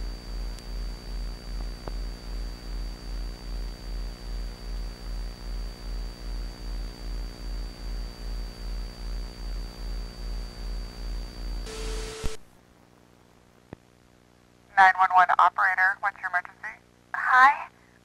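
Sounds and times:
high whine and hiss: 0:00.0 - 0:14.6
pulsing electrical hum: 0:00.0 - 0:14.7
mid tone: 0:11.6 - 0:12.4
burst of static: 0:11.7 - 0:12.4.

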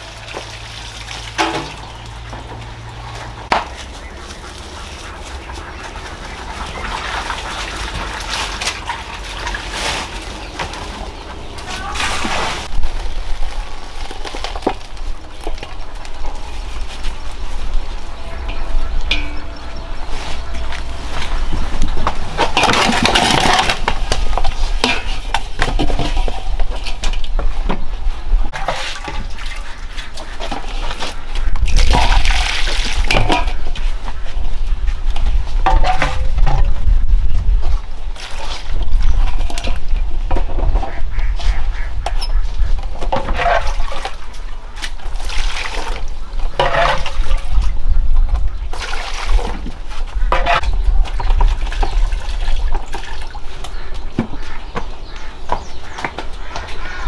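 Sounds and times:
water splashing in metal basin: 0:00.0 - 0:09.8, 0:17.9 - 0:27.2, 0:28.5 - 0:34.0, 0:43.2 - 0:47.7, 0:48.7 - 0:54.1.

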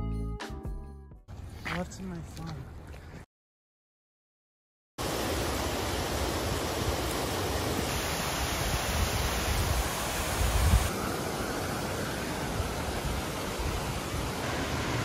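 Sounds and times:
waterfall rushing: 0:05.0 - 0:15.0.

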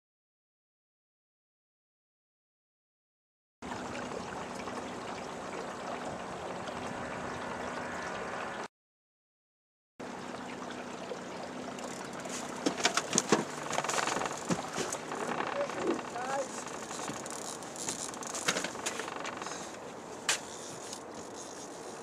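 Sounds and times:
outboard motor hum: 0:03.6 - 0:08.7, 0:10.0 - 0:22.0
water rushing along boat hull: 0:03.6 - 0:08.7, 0:10.0 - 0:22.0.

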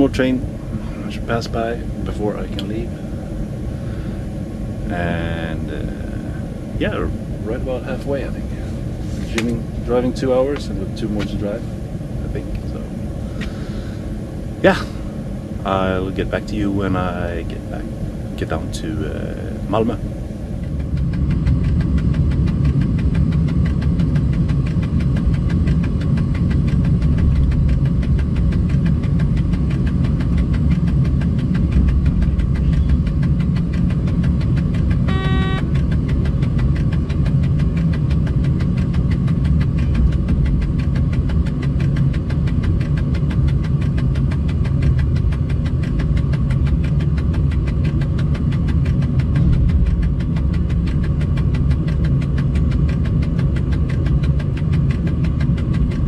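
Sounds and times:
locomotive rumble: 0:00.0 - 0:56.0
tachograph ticking: 0:20.4 - 0:56.0
short beep: 0:35.1 - 0:35.7.

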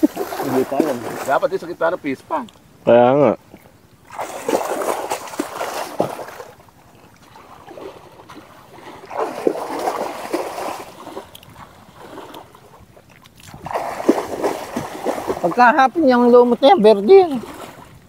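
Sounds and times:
water splashing and sloshing: 0:00.0 - 0:02.8, 0:03.4 - 0:18.0.

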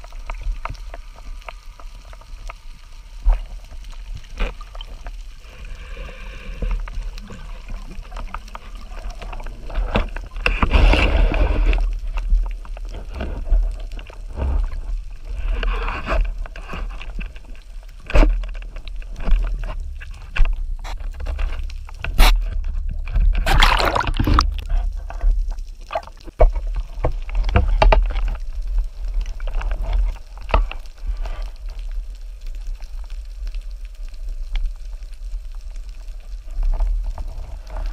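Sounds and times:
steady underwater rumble: 0:00.0 - 0:37.9
water swishing and gurgling: 0:00.0 - 0:37.9
rushes of bubbles: 0:04.2 - 0:13.7, 0:23.3 - 0:27.5.

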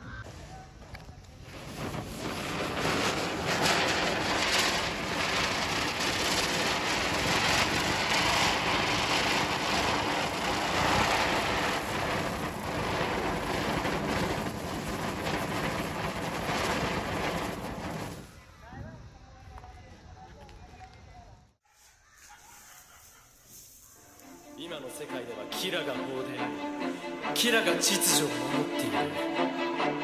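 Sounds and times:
spinning firework hissing: 0:00.4 - 0:18.7, 0:22.0 - 0:24.9.

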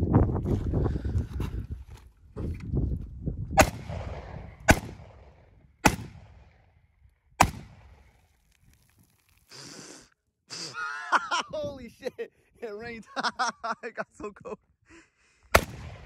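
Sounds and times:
rifle shots with echo: 0:03.6 - 0:06.7, 0:07.4 - 0:08.0, 0:15.5 - 0:16.0.

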